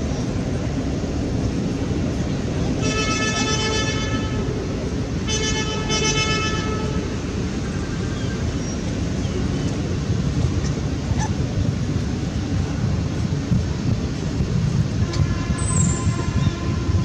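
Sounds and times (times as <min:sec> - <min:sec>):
vehicle horn toots: 0:02.8 - 0:04.4, 0:05.3 - 0:07.0, 0:15.0 - 0:17.0.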